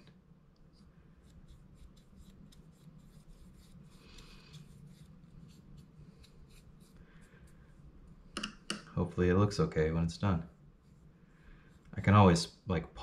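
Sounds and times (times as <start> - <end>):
low steady hum: 0.0 - 13.0
brush strokes on wood: 0.7 - 8.2, 10.1 - 12.5.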